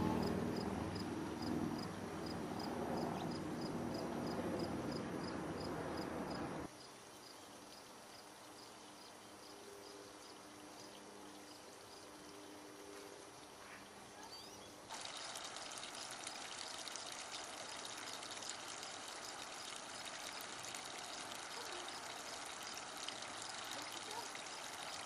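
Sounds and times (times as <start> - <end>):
running water hissing: 14.9 - 25.0.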